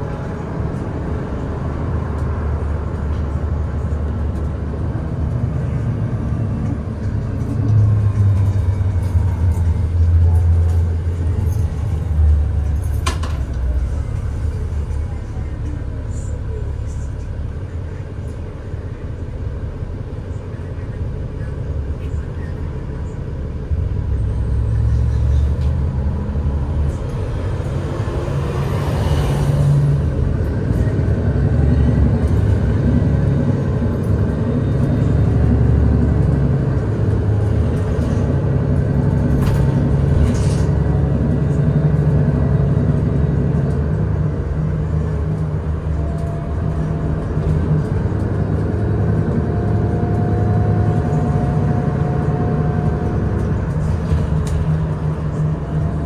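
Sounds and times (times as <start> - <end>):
bus drivetrain and road rumble: 0.0 - 56.0.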